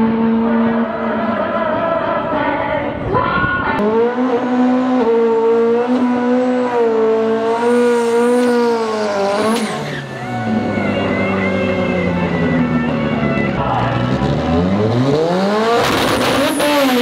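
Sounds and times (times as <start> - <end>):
drag car engine revving: 3.6 - 17.0.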